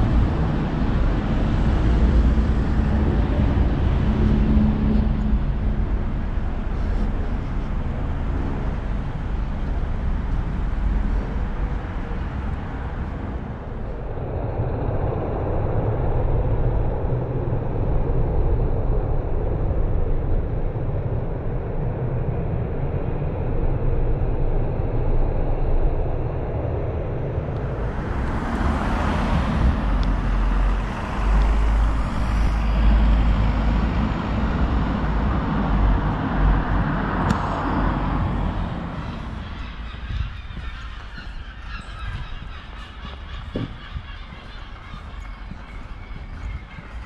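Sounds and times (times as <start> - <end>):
rumble of road traffic: 0.0 - 47.0
vehicle passing loudly: 27.4 - 47.0.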